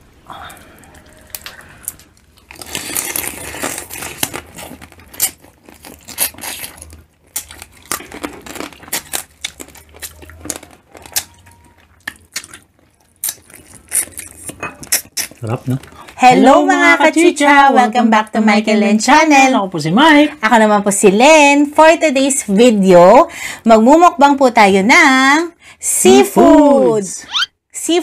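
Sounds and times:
chewing: 0:00.4 - 0:16.2
shells cracking and tearing: 0:01.3 - 0:11.4.

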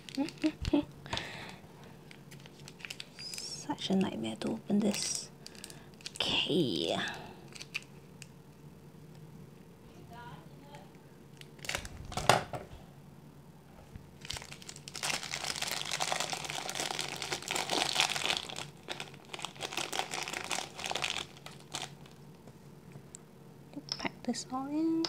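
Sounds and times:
plastic wrapping crinkling: 0:00.0 - 0:00.9, 0:02.0 - 0:06.5, 0:07.5 - 0:08.3, 0:11.4 - 0:12.3, 0:14.2 - 0:22.3.

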